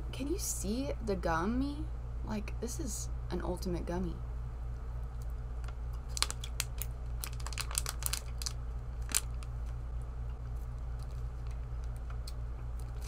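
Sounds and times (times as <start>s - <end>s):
plastic bag crinkling: 6.0s - 9.8s.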